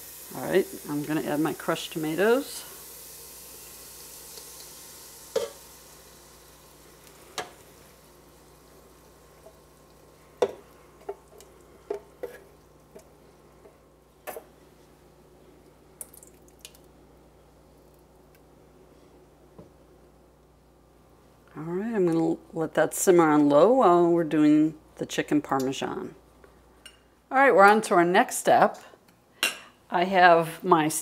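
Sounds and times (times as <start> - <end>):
onions sizzling in oil: 0.0 - 14.0.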